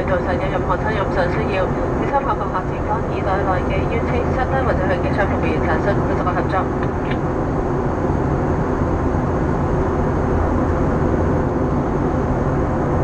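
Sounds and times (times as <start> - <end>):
airliner cabin engine rumble: 0.0 - 13.0.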